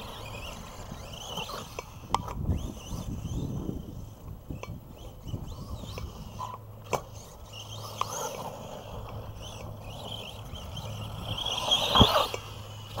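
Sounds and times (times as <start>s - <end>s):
rc truck running on dirt: 0.0s - 13.0s
rc truck landing thump: 6.8s - 13.0s.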